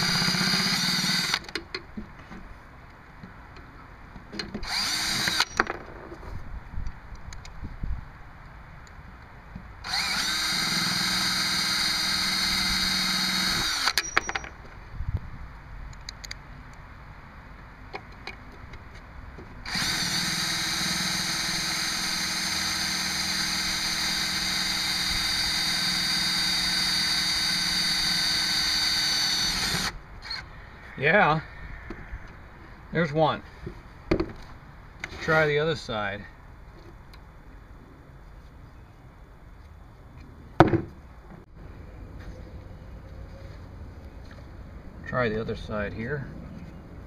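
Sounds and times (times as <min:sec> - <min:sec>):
cordless drill driving screw: 0:00.0 - 0:01.5, 0:04.6 - 0:05.7, 0:09.8 - 0:14.2, 0:19.7 - 0:30.4.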